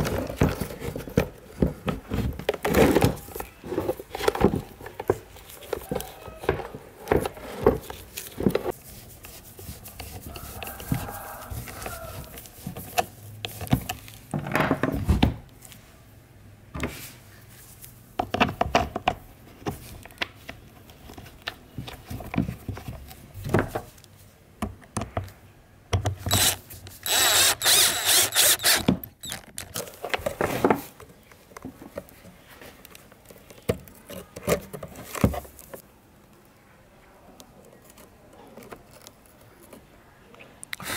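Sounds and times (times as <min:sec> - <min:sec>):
plastic and metal parts clicking: 0:26.0 - 0:30.4.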